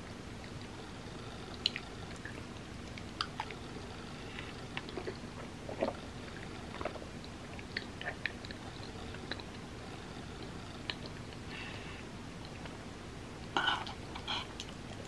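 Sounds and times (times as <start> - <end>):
person chewing food: 4.4 - 9.6.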